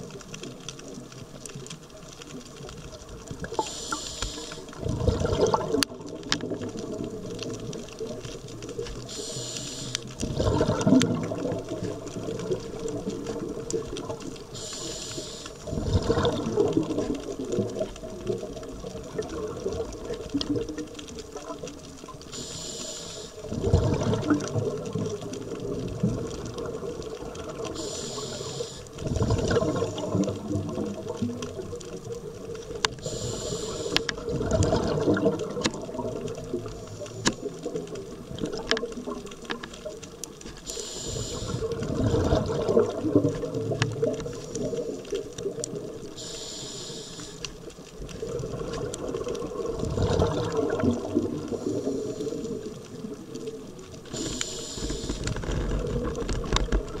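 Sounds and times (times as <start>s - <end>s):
underwater bubbling: 0.0s - 57.0s
brief hiss: 3.6s - 4.6s, 9.1s - 10.0s, 14.5s - 15.6s, 22.3s - 23.4s, 27.8s - 28.9s, 33.0s - 34.1s, 40.7s - 41.7s, 46.2s - 47.4s, 54.1s - 55.3s.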